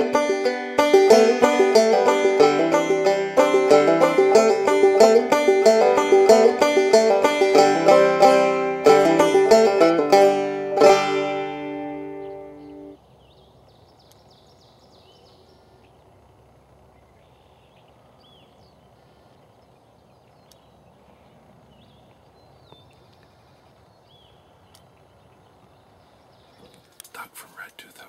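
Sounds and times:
banjo music: 0.0 - 13.0
small birds chirping: 12.1 - 28.0.

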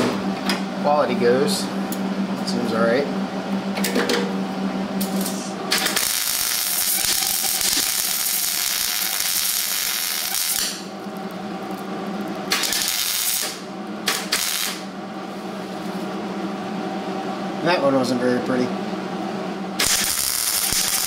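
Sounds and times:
steady hum: 0.0 - 21.0
welder arc crackling and hissing: 5.0 - 16.1, 19.7 - 21.0.

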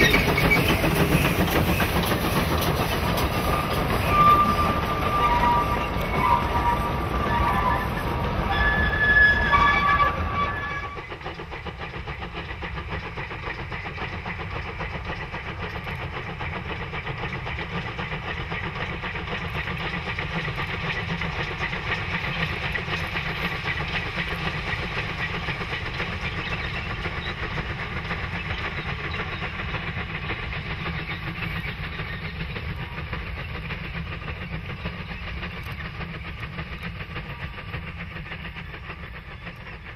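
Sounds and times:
high-pitched wheel squeals: 0.0 - 1.9, 3.5 - 11.1
train wagons rolling past: 0.0 - 39.9.

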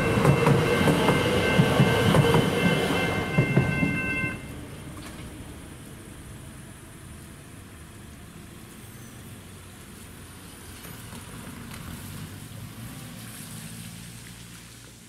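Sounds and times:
low traffic rumble: 0.0 - 15.0
car driving on wet road: 9.3 - 15.0.

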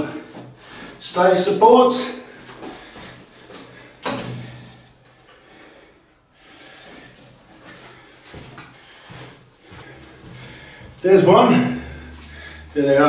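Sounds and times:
footsteps on carpet: 7.2 - 12.6.

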